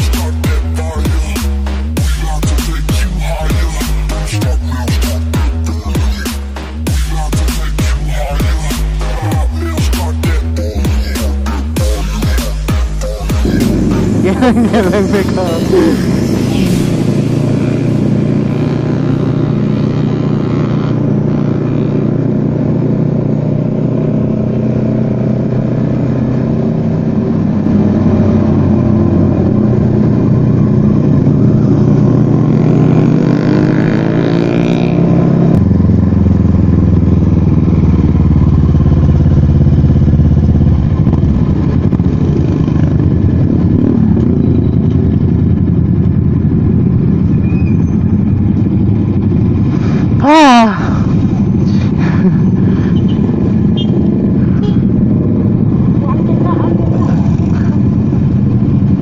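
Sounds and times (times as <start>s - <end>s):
motorcycle engine running: 0.0s - 59.0s
wind rush: 48.9s - 59.0s.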